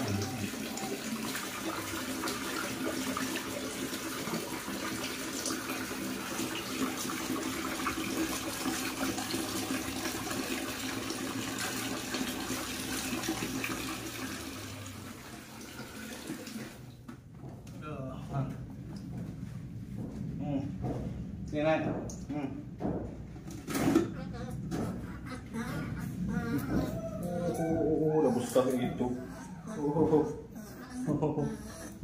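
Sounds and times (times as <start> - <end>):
water running from a tap into basin: 0.0 - 16.9.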